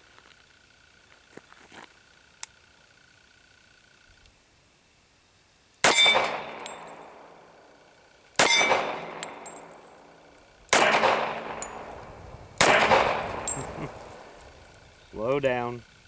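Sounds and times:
pistol shots with echo: 5.8 - 7.4, 8.4 - 14.4.

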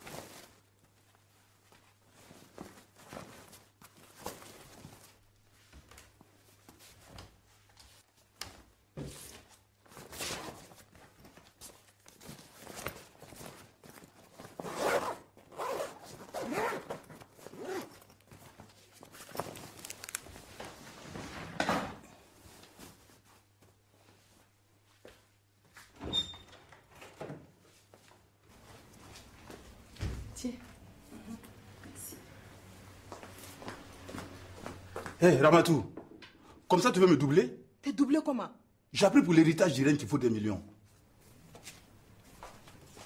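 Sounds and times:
bag zipper pulled: 14.6 - 18.0
footsteps: 27.6 - 35.4, 40.8 - 43.0.

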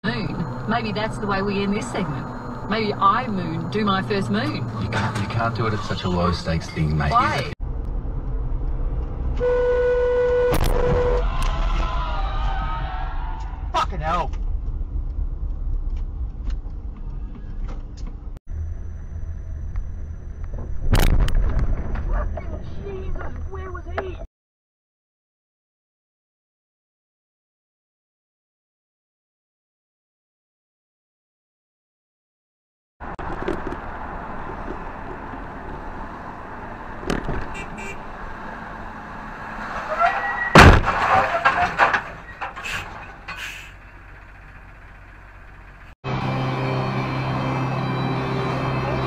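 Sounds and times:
car interior road rumble: 0.0 - 24.3, 33.0 - 46.0
horn: 9.4 - 11.3
loud crash: 39.7 - 43.3.

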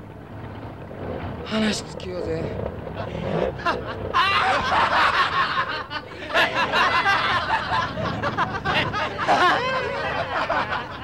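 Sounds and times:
men laughing loudly: 3.0 - 11.0.

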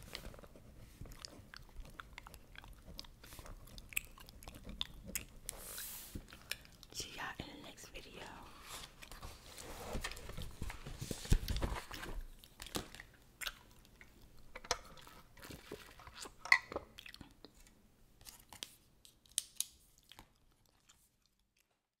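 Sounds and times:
gum chewing wet clicks: 1.1 - 5.5
book pages handled: 8.6 - 13.0.

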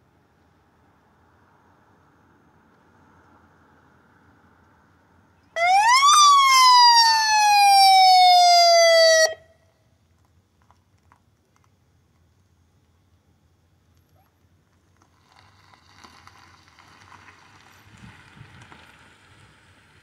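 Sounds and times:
police siren wail: 5.6 - 9.5.

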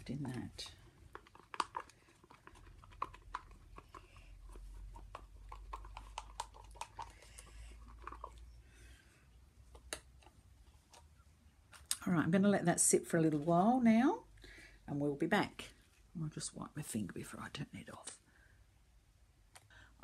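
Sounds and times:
plastic cups clicking: 0.2 - 8.4.

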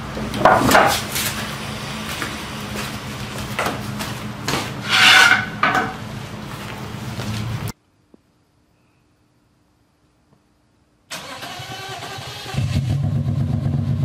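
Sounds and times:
wooden board scraping on concrete: 4.6 - 6.0.

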